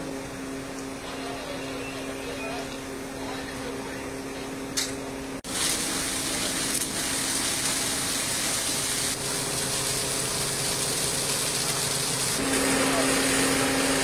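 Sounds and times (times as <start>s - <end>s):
steady machine hum: 0.0s - 14.0s
fire hose spraying water: 5.4s - 14.0s.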